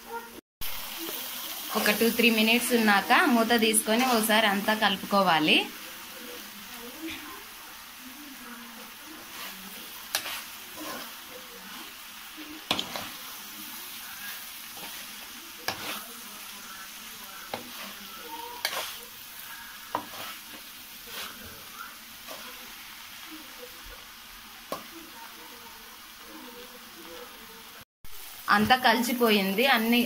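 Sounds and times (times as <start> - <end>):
frying oil sizzling: 0.0 - 30.0
spoon clinking and scraping pan: 9.2 - 11.9, 12.6 - 13.3, 14.7 - 16.3, 17.5 - 21.6.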